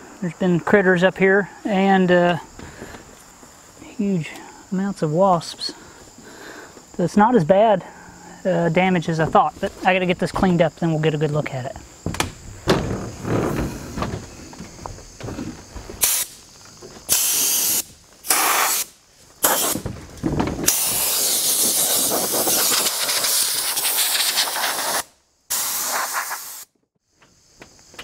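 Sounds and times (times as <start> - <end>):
compressed air blow gun hissing: 16.0 - 16.4, 17.1 - 19.9, 20.6 - 26.8.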